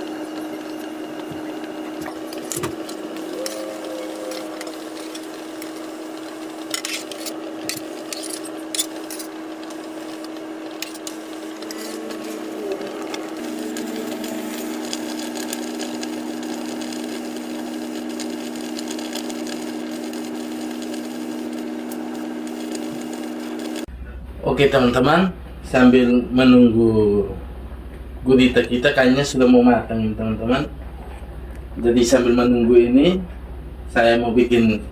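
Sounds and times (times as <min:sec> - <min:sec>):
water bubbling at rolling boil: 0:00.0 - 0:23.9
steady low hum: 0:00.0 - 0:34.9.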